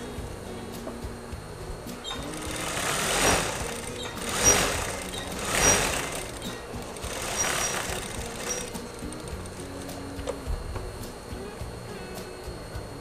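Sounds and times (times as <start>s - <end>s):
sewing machine stitching: 2.1s - 9.3s.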